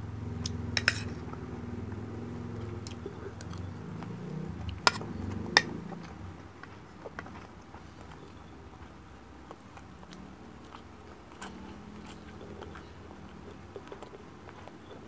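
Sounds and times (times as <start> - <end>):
close chewing of food: 0.3 - 15.0
metal spoon clicking on plate: 0.8 - 1.2.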